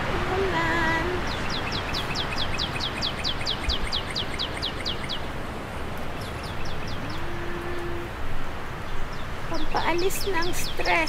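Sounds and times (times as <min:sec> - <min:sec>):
rain hissing: 0:00.0 - 0:11.0
bird singing high notes: 0:06.4 - 0:08.1.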